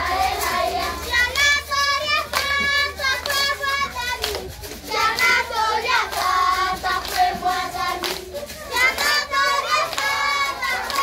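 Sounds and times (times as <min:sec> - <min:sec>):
children singing in chorus: 0:00.0 - 0:11.0
hand claps: 0:00.0 - 0:11.0.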